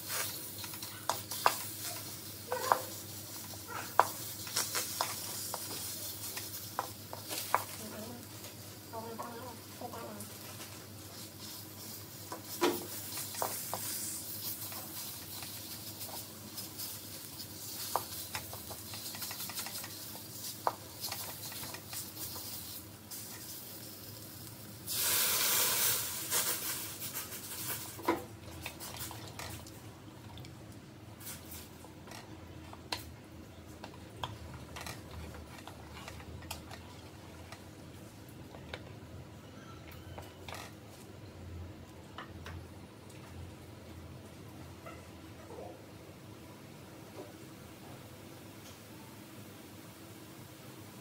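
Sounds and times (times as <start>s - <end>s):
liquid hissing in hot pan: 0.0s - 29.6s, 31.1s - 31.8s
meat sizzling in a pan: 0.0s - 29.6s.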